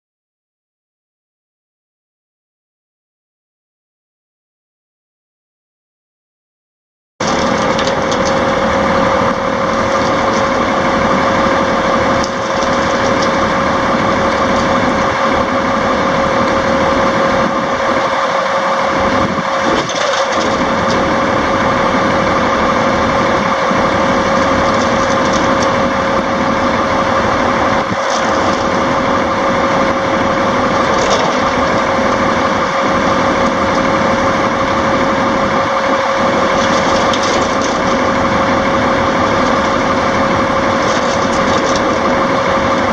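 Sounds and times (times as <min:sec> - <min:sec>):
constant whine: 0:07.2 - 0:42.9
diesel engine idling: 0:07.2 - 0:42.9.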